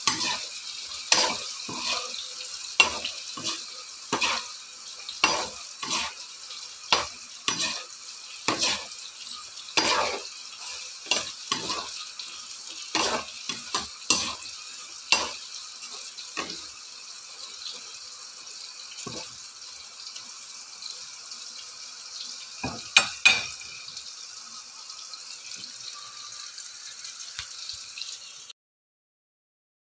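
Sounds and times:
metal spoon scraping a pan: 0:00.0 - 0:17.9, 0:19.0 - 0:19.4, 0:22.6 - 0:24.0
fries sizzling in hot oil: 0:00.0 - 0:28.6.

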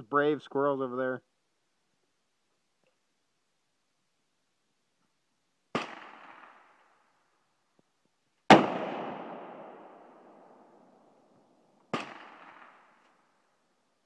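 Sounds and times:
rifle shots: 0:05.7 - 0:06.9, 0:08.5 - 0:10.8, 0:11.9 - 0:13.3.

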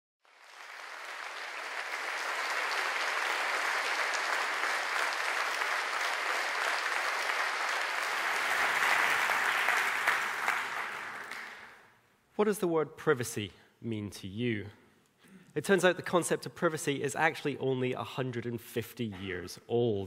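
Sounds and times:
audience applauding: 0:00.2 - 0:11.9.

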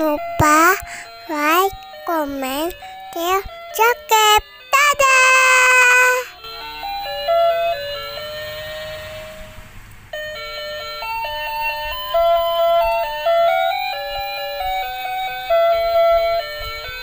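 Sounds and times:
electronic chime melody: 0:06.4 - 0:09.5, 0:10.2 - 0:16.9.

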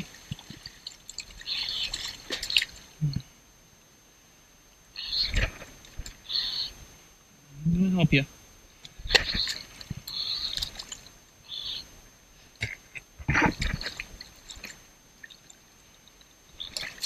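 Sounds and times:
water splashing and sloshing: 0:00.0 - 0:03.2, 0:08.8 - 0:17.0
water dripping: 0:00.0 - 0:03.3, 0:08.8 - 0:11.9, 0:12.6 - 0:17.0.

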